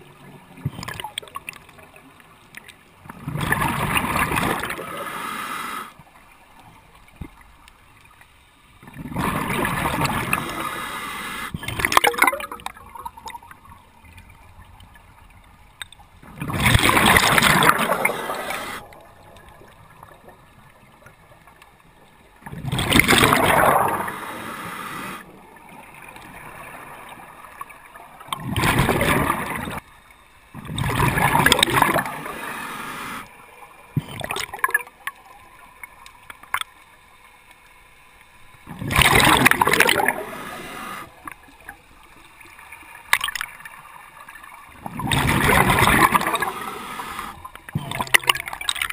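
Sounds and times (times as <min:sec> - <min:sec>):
scuba regulator exhaust bubbles: 0:08.8 - 0:13.6, 0:16.2 - 0:20.4, 0:22.4 - 0:25.3, 0:30.5 - 0:33.3, 0:33.9 - 0:34.9, 0:38.6 - 0:41.8, 0:44.8 - 0:48.9.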